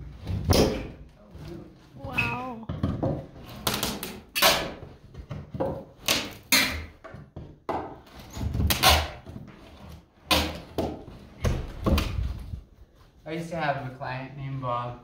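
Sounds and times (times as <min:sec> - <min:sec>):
wooden knocks and creaks: 0:02.0 - 0:04.0.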